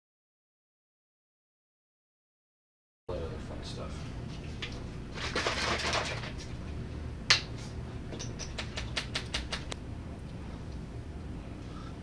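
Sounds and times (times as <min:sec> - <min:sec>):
low room hum: 0:03.1 - 0:12.0.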